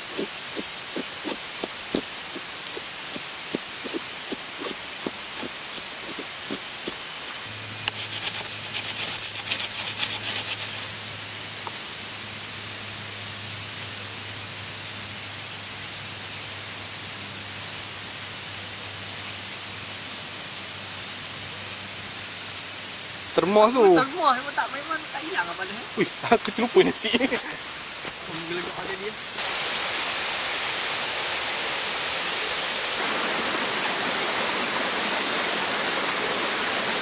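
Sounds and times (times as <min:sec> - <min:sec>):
knife scraping ferro rod: 0:00.0 - 0:07.0, 0:07.8 - 0:10.9
knife shaving wood: 0:00.0 - 0:10.9
steady hiss: 0:00.0 - 0:37.0.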